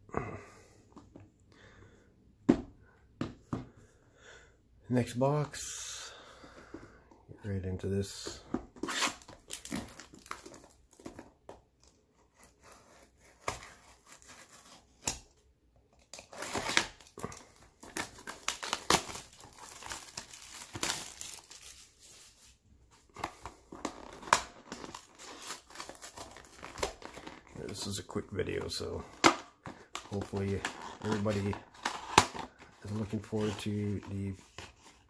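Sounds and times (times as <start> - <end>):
plastic seal crinkling and tearing: 8.8 - 11.9, 15.9 - 22.0, 28.7 - 35.0.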